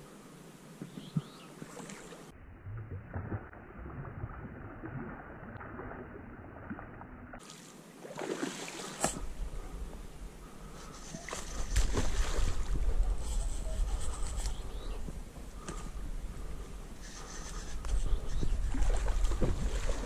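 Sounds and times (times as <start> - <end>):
fish splashing in water: 11.1 - 12.8.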